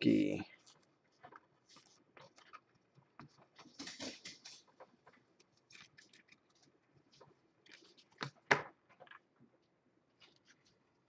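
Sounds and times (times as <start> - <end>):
cards rustling and clicking: 0.6 - 9.2.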